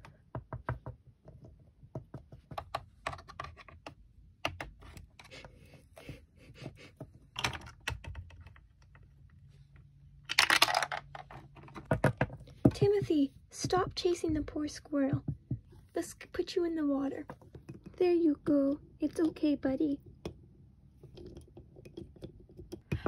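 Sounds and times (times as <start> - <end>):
plastic rattle: 10.3 - 12.4
plastic toys tapping and clicking: 10.3 - 15.8, 21.0 - 23.0.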